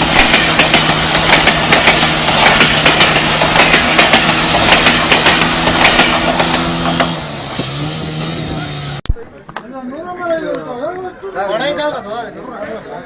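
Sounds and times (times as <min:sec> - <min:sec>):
train wheel clacks: 0:00.0 - 0:07.2
train engine hum: 0:00.0 - 0:09.0
water spraying under train: 0:00.0 - 0:09.0.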